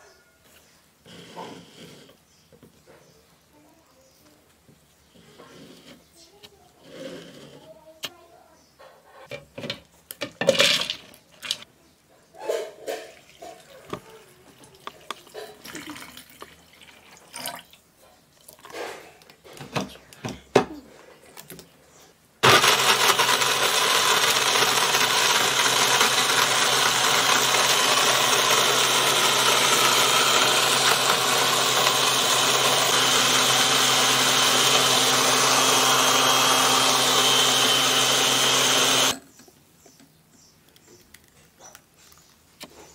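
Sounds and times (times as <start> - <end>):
blender whirring: 22.4 - 39.2.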